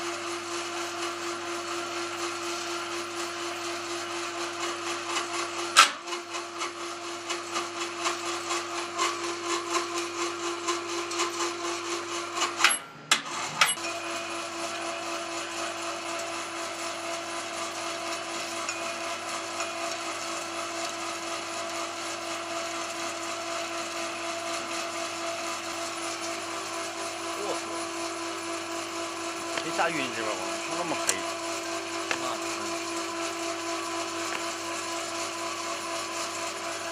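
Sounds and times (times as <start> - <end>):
electric hoist whining: 9.6 - 21.0, 23.9 - 36.9.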